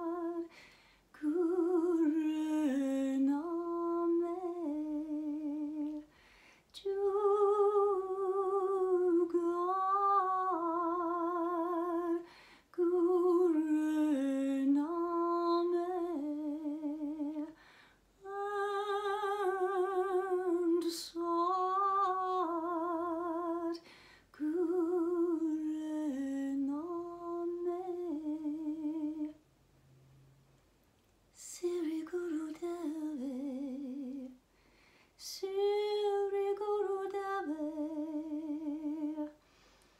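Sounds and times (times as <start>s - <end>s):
woman singing wordless melody: 0.0s - 17.6s, 18.2s - 29.4s, 31.3s - 34.5s, 35.2s - 39.4s
singer breathing: 0.5s - 1.1s, 6.1s - 6.7s, 12.2s - 12.7s, 17.6s - 18.1s, 23.8s - 24.3s, 34.5s - 35.2s, 39.4s - 39.9s.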